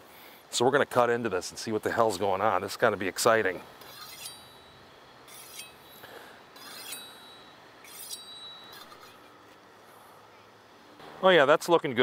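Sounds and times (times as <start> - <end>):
knife scraping on honing steel: 3.8 - 9.4.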